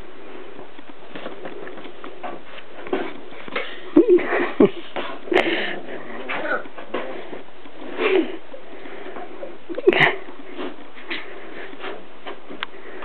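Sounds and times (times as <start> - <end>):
puppies snuffling: 0.2 - 13.0.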